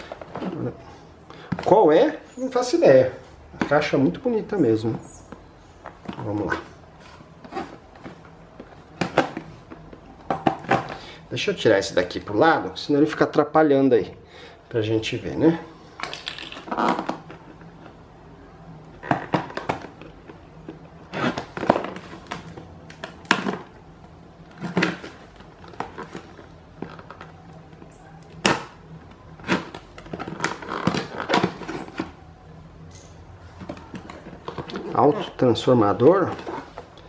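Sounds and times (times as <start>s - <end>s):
cardboard box rustling and scraping: 6.0s - 11.0s.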